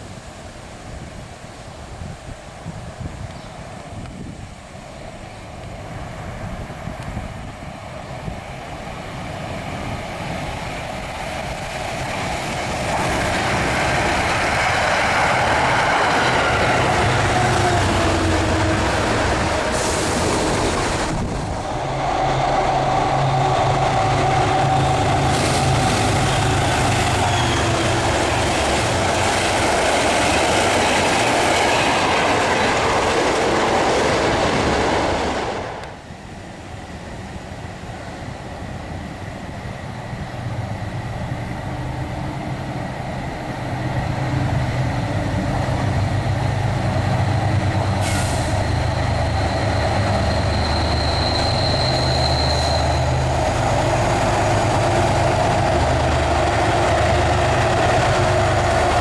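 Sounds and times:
train wheels rumbling on rail: 2.0 - 59.0.

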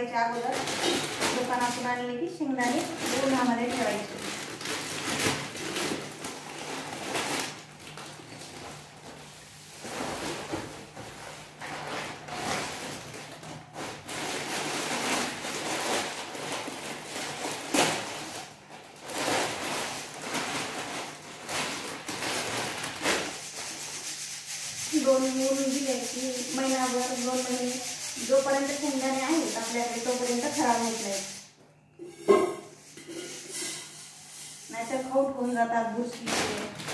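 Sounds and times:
plastic packets rustling: 0.1 - 23.4, 36.0 - 36.9.

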